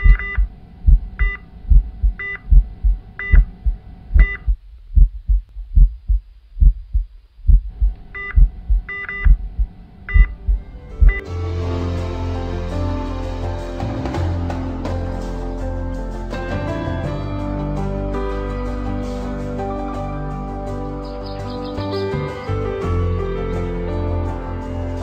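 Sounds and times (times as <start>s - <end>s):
cardiac monitor beeping: 0.0s - 11.2s
heartbeat lub-dub: 0.0s - 11.3s
monitor hum: 0.0s - 11.3s
music: 9.5s - 25.0s.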